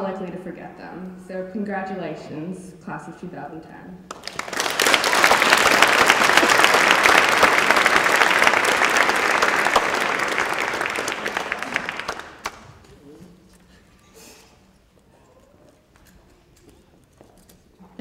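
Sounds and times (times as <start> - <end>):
audience applauding: 4.1 - 12.8.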